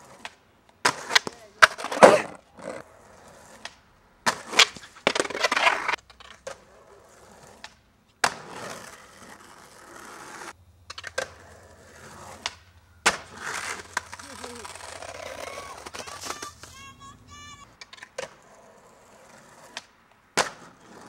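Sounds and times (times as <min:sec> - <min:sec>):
skateboard wheels rolling on concrete: 0:00.0 - 0:21.0
skateboard pops and clacks: 0:00.1 - 0:02.8, 0:03.6 - 0:06.7, 0:07.6 - 0:09.4, 0:10.9 - 0:11.4, 0:12.3 - 0:16.8, 0:17.8 - 0:18.5, 0:19.4 - 0:21.0.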